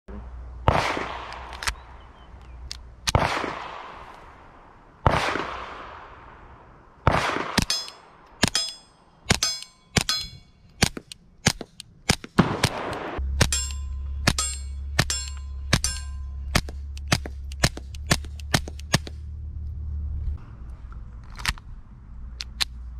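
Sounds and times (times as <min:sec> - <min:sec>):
suppressed pistol shots with echo: 0:00.6 - 0:02.0, 0:03.1 - 0:04.1, 0:05.0 - 0:19.1
rapid pistol shots: 0:00.7 - 0:01.5, 0:03.1 - 0:04.0, 0:05.0 - 0:06.1, 0:07.0 - 0:19.2
short metallic ring: 0:07.7 - 0:10.6, 0:13.4 - 0:16.5.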